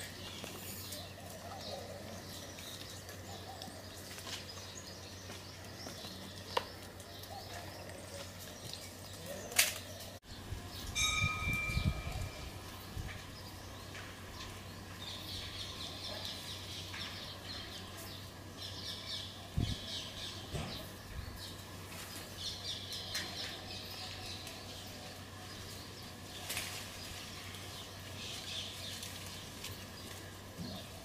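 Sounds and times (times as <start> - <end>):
birds chirping: 0.0 - 31.0
low steady hum: 0.0 - 31.0.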